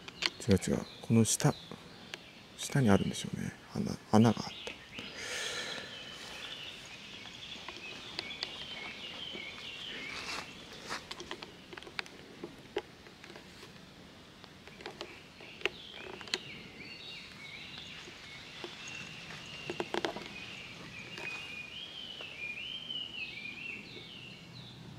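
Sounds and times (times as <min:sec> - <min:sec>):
songbirds singing: 0:00.0 - 0:24.9
steady outdoor hiss: 0:00.0 - 0:24.9
footsteps on forest trail: 0:05.8 - 0:12.6, 0:15.1 - 0:22.7.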